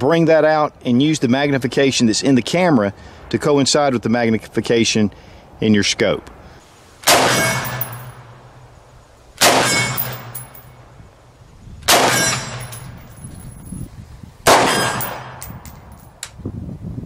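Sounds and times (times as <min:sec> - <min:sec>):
rifle shots echoing: 0:07.0 - 0:08.6, 0:09.4 - 0:10.8, 0:11.9 - 0:13.2, 0:14.5 - 0:15.6.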